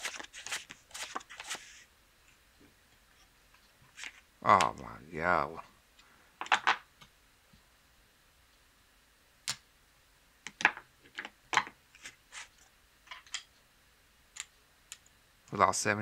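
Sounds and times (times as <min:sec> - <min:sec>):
cards and chips clicking and slapping: 0:00.0 - 0:01.7.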